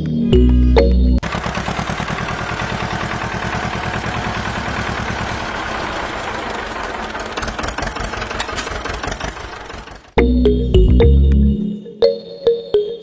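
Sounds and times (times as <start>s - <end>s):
tractor engine idling: 1.2s - 10.2s.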